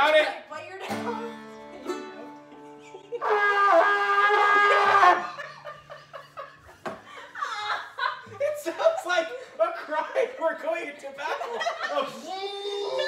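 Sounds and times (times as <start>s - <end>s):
trumpet holding a loud note: 3.2s - 5.3s.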